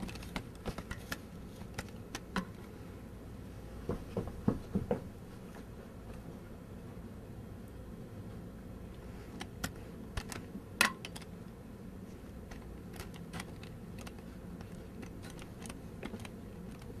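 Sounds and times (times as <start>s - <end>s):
foil ball clicks and crinkles: 0.0s - 2.5s, 12.3s - 17.0s
low steady hum: 0.0s - 17.0s.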